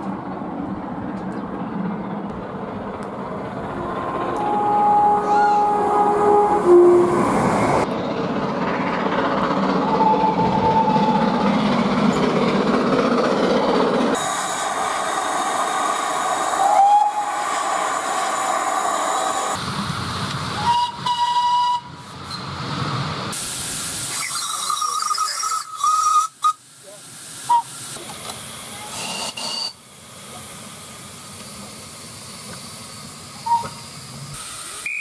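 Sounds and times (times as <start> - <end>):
steam train running: 1.7 - 35.0
steam whistle blasts: 3.8 - 7.8, 16.5 - 17.7, 20.6 - 21.9, 33.4 - 33.8
steam hissing: 14.1 - 35.0.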